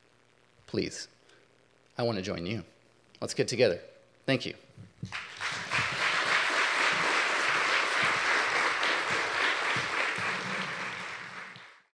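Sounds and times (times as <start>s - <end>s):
audience applauding: 5.1s - 11.9s.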